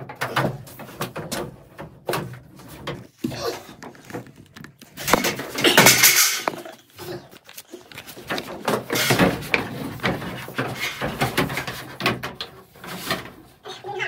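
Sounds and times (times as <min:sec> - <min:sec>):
scraping and rustling against wood: 0:00.0 - 0:14.0.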